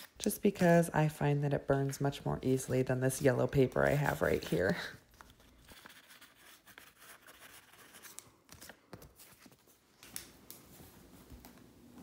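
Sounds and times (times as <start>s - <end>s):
pen scratching on paper: 5.7s - 8.0s.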